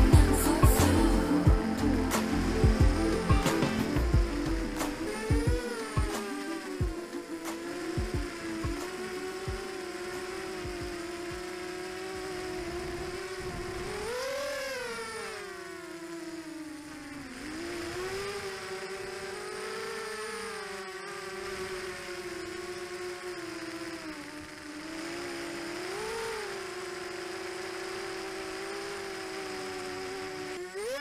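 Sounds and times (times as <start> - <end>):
quadcopter motors whining: 0.0 - 31.0.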